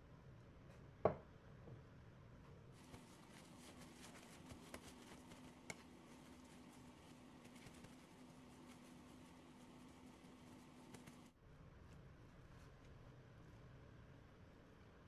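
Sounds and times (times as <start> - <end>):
paper towel rustling and patting: 2.7 - 11.3.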